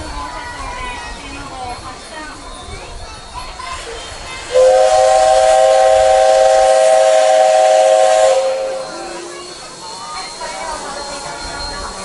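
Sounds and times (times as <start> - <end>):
steam hissing: 0.0 - 12.0
steam locomotive whistle: 4.5 - 9.5.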